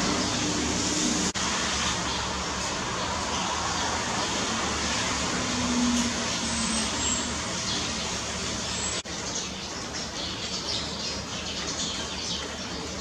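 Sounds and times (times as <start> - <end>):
sparrows chirping: 0.0 - 5.2, 5.9 - 13.0
steady rain hiss: 0.0 - 9.7.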